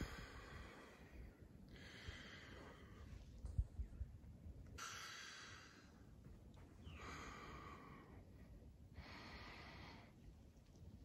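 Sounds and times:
person breathing heavily: 0.0s - 3.3s, 8.9s - 10.3s.

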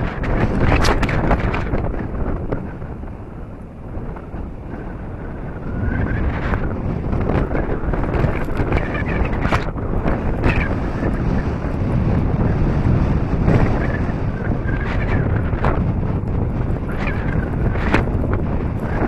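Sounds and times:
clicks and rustles: 0.0s - 2.7s, 6.2s - 11.8s, 14.7s - 19.0s
wind buffeting microphone: 0.0s - 19.0s.

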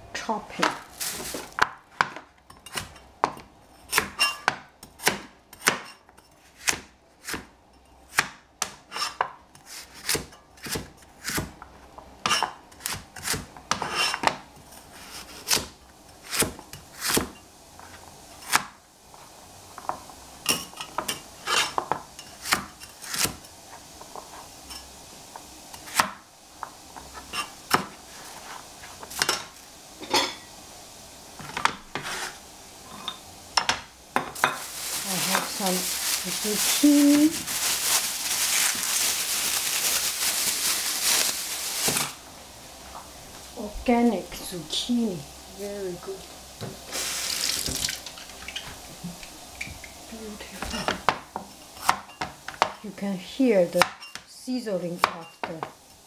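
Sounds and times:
knife chopping on cutting board: 2.0s - 5.9s, 6.6s - 7.5s, 8.1s - 11.5s.

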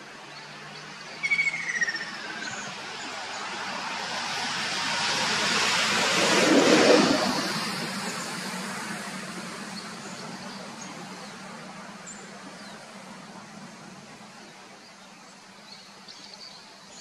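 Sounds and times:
vehicle passing by: 2.5s - 9.7s.

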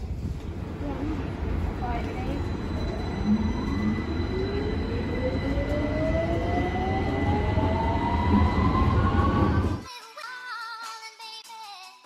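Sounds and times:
train rumble with motor whine: 0.0s - 9.8s
steady high tone: 0.6s - 9.8s.

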